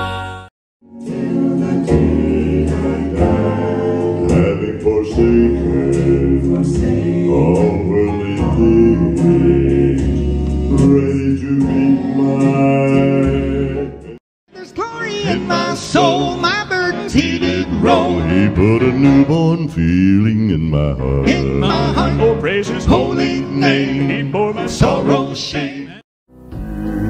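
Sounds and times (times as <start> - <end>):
male quartet singing in harmony: 1.0 - 26.0
low bass voice: 18.2 - 21.9.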